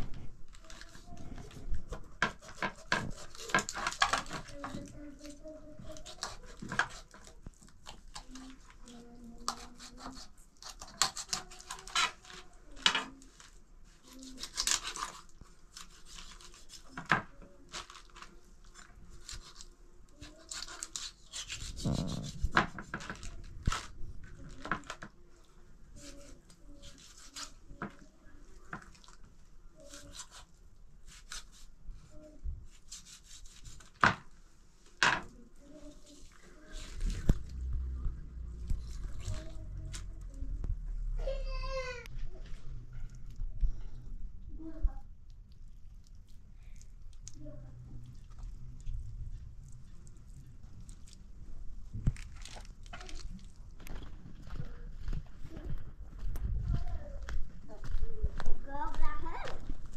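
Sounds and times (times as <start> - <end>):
rubbing and scraping: 0.0 - 29.1, 31.1 - 40.6.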